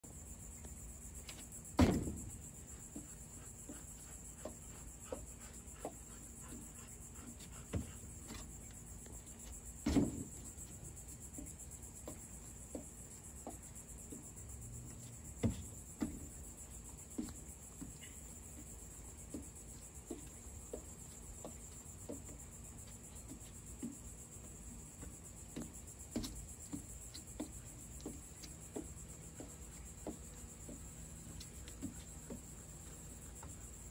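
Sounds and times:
high drone of insects: 0.0s - 33.9s
footfalls on wooden boards: 0.6s - 33.5s
heavy thumps of feet landing: 1.3s - 3.0s, 9.4s - 13.7s.

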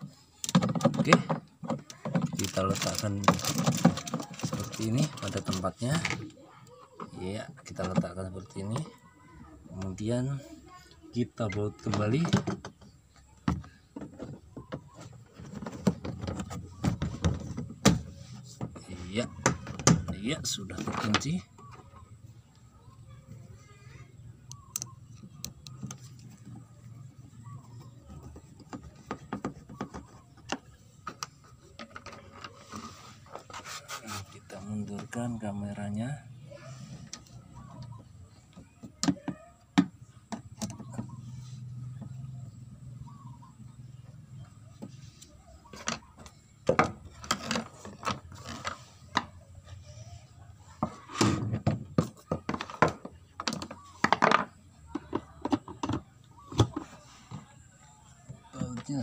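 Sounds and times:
plastic and metal parts knocking: 0.0s - 9.0s, 11.4s - 22.0s, 24.5s - 33.6s, 37.0s - 41.2s, 45.6s - 49.4s, 50.8s - 59.0s.

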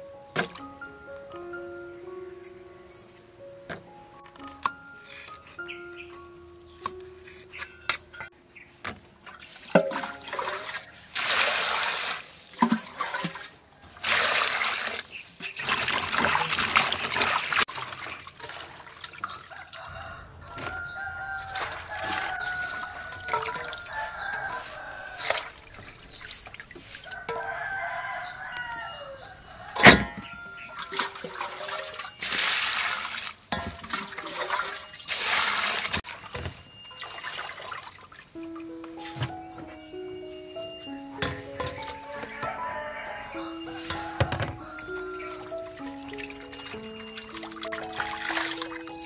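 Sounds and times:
hands sloshing beans in water: 9.2s - 19.8s, 21.3s - 28.2s, 30.8s - 38.3s, 43.7s - 49.0s
rooster crowing: 19.5s - 25.8s, 26.9s - 31.9s, 41.8s - 45.2s.

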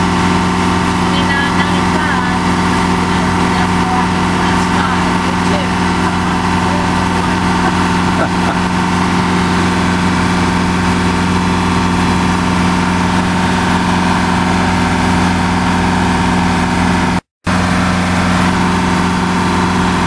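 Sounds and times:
boat engine droning: 0.0s - 20.0s
water and wind hiss: 0.0s - 20.0s.

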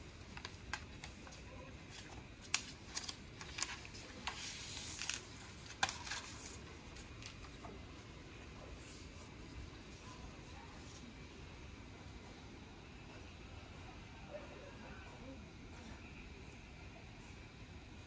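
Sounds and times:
plastic sheet being peeled off: 0.1s - 7.6s
sharp plastic crackles: 0.2s - 7.7s.

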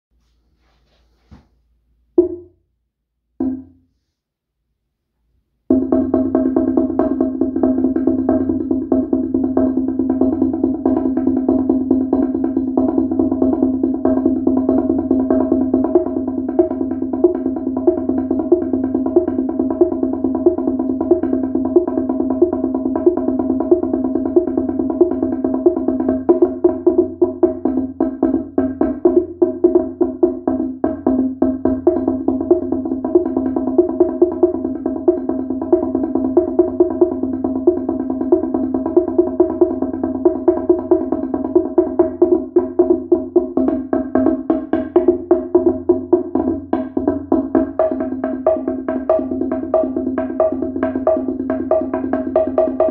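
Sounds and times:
slit drum struck with mallets: 2.2s - 2.6s, 3.4s - 3.8s.

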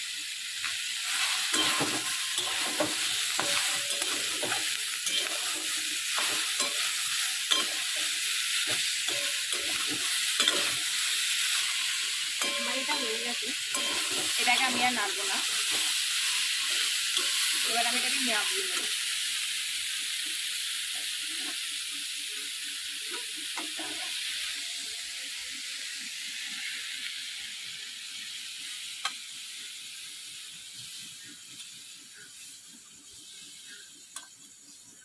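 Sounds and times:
food sizzling in a metal pan: 0.0s - 35.0s
metal spatula scraping and tapping: 1.2s - 10.9s, 12.4s - 13.1s, 13.7s - 14.9s.

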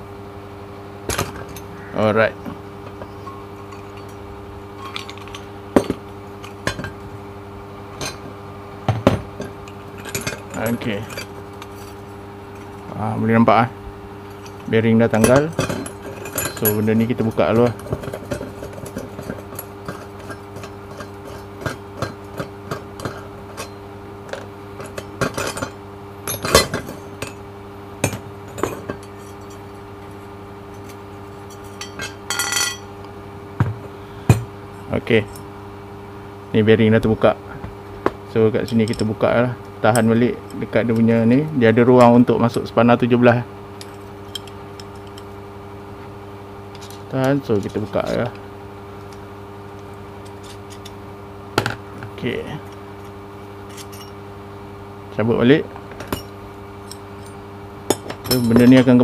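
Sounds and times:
steady background hum: 0.0s - 59.0s
steel parts clinking together: 1.1s - 1.7s, 2.4s - 4.2s, 4.8s - 7.1s, 7.9s - 8.3s, 8.9s - 13.0s, 14.3s - 27.4s, 28.0s - 33.0s, 38.5s - 42.3s, 43.8s - 45.3s, 46.7s - 48.4s, 50.2s - 51.0s, 52.6s - 54.2s, 56.0s - 59.0s
light metallic clinks: 14.3s - 23.8s, 56.0s - 59.0s.

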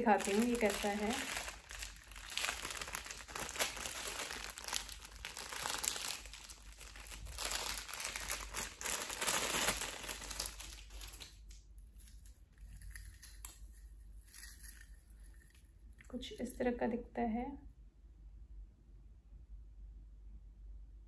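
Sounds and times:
plastic bag crinkling: 0.0s - 15.6s.

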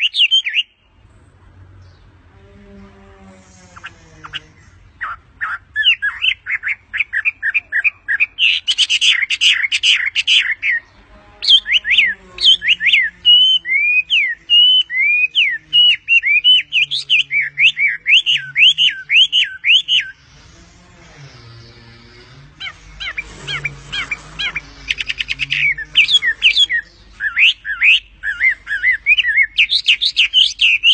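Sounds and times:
bird chirping notes: 0.0s - 30.9s
bird whistling notes: 11.4s - 20.2s, 22.6s - 30.9s.

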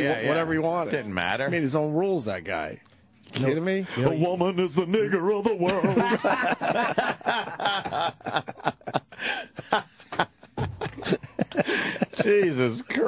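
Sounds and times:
men laughing and snickering: 5.6s - 13.0s.

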